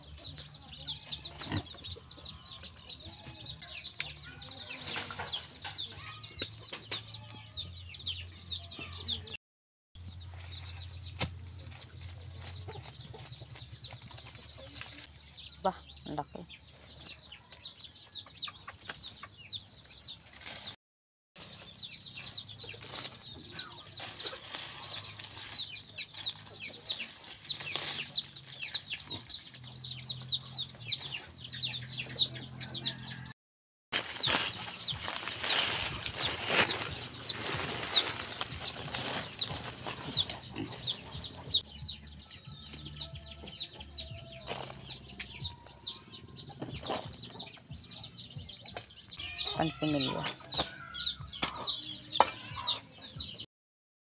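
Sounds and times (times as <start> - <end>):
plants rustling: 22.8 - 28.8, 34.0 - 40.7
hands digging in soil: 34.0 - 40.7.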